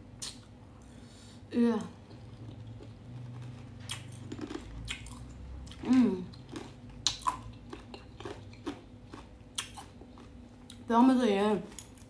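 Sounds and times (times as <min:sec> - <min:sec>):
chewing with wet smacks: 0:02.0 - 0:10.8
person humming: 0:05.8 - 0:06.3.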